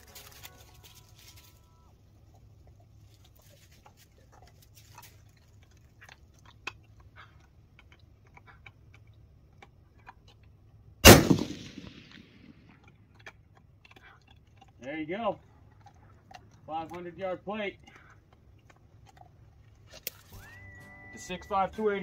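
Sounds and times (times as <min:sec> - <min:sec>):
rifle shot echoing: 0:11.0 - 0:12.6.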